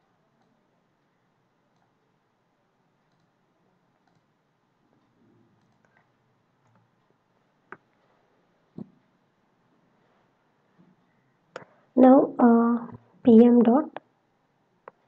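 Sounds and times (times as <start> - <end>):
computer mouse and keyboard clicks: 1.7 - 2.1, 3.0 - 3.4, 4.0 - 4.3, 4.9 - 7.1.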